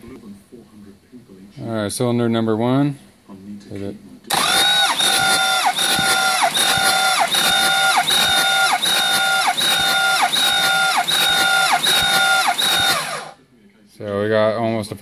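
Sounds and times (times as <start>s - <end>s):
engine starter cranking: 4.3s - 13.4s.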